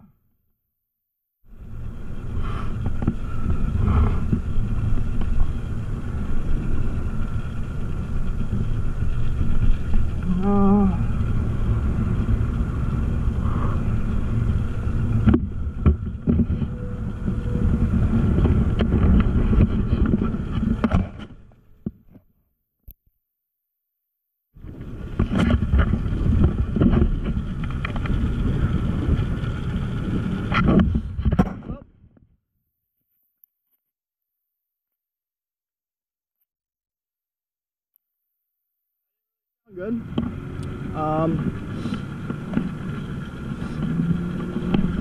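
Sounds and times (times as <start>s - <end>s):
wind buffeting microphone: 1.6s - 21.2s, 24.6s - 31.8s.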